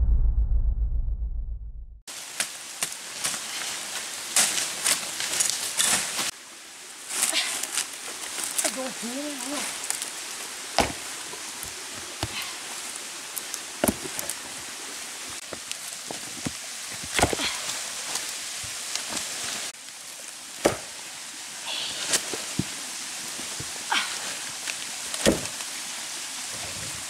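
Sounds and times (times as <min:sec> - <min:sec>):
dry leaves rustling underfoot: 0:02.1 - 0:27.0
steady hiss: 0:02.1 - 0:27.0
stones knocking on rocky ground: 0:10.8 - 0:12.5, 0:13.8 - 0:14.4, 0:15.4 - 0:17.6, 0:25.2 - 0:25.6.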